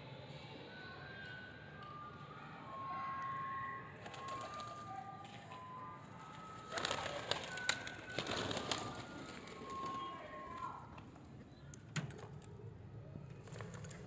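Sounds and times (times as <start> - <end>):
clattering wingbeats: 6.7 - 10.0.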